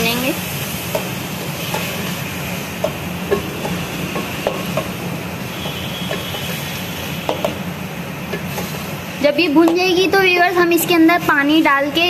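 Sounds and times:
food sizzling: 0:00.0 - 0:12.0
spatula knocking pot: 0:02.8 - 0:05.0, 0:07.2 - 0:07.6.

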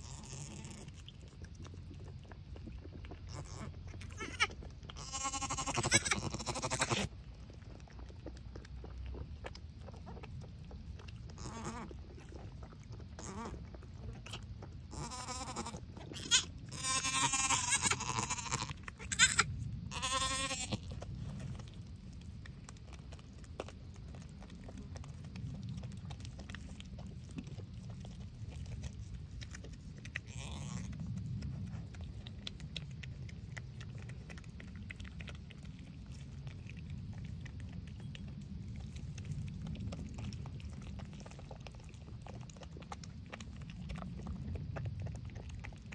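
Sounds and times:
goats bleating: 0:03.3 - 0:07.1, 0:14.9 - 0:20.9.

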